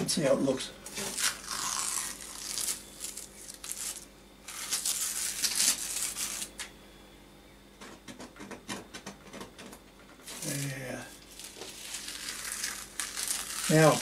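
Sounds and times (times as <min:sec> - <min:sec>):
masking tape peeling off canvas: 0:00.9 - 0:06.7, 0:10.3 - 0:14.0.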